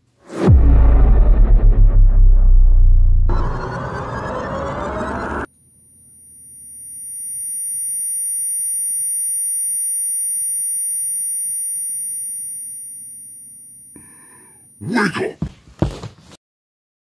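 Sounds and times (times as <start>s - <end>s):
high-pitched electronic ringing tone: 3.3s - 14.8s.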